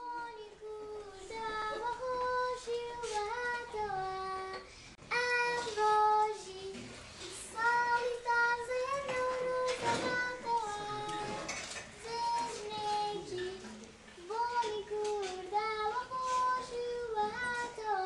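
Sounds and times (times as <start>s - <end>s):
children singing in unison: 7.6s - 13.7s, 14.3s - 18.0s.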